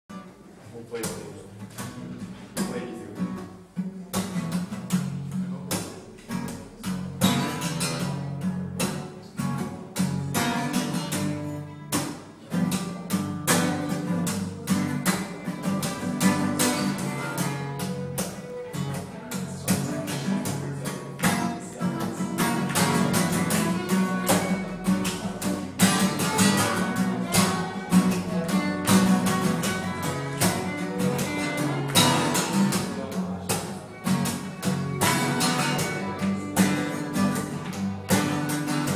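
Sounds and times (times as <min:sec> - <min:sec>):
acoustic guitars strummed: 0:00.1 - 0:38.9
bowed fiddle melody: 0:13.7 - 0:38.9.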